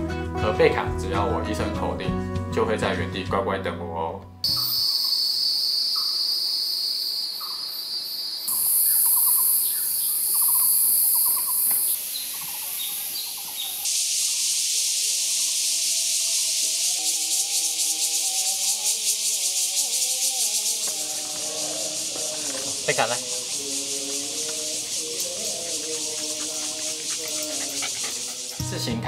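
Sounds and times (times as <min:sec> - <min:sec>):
soft sustained music: 0:00.0 - 0:04.8, 0:15.9 - 0:29.0
shrilling insects: 0:04.4 - 0:29.0
rapidly pulsing insect drone: 0:04.5 - 0:28.9.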